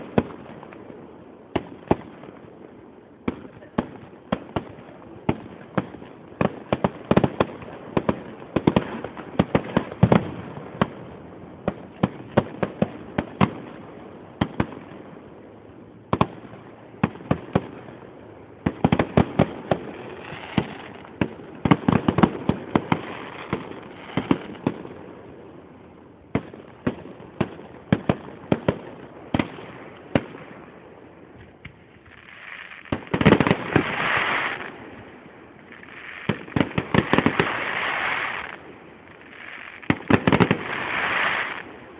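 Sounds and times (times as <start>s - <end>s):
noisy rush of fireworks: 0.0s - 41.9s
fireworks bangs: 16.1s - 25.4s, 26.3s - 41.9s.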